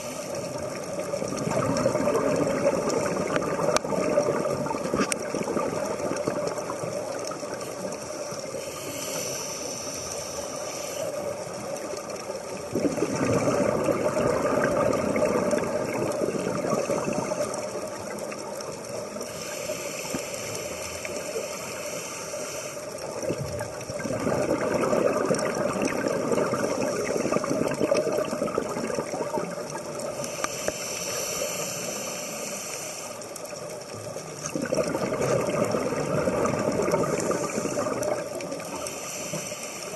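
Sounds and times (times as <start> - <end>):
gurgle of exhaled bubbles: 0.0 - 8.6, 11.2 - 19.3, 23.0 - 30.8, 33.6 - 39.0
hissing regulator inhalation: 7.6 - 11.9, 19.1 - 23.3, 30.0 - 33.7, 36.8 - 39.9.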